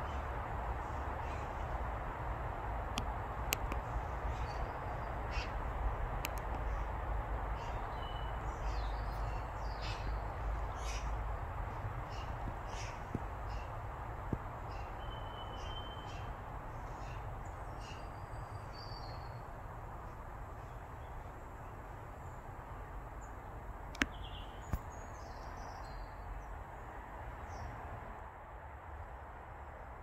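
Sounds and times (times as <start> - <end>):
outdoor background hiss: 0.0 - 30.0
small birds chirping: 3.5 - 23.4, 24.0 - 26.5
sharp clicks: 6.2 - 6.7.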